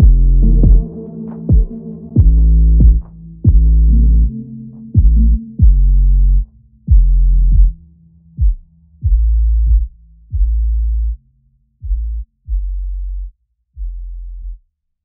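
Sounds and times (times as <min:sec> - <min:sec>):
electronic music with deep bass: 0:00.0 - 0:11.2.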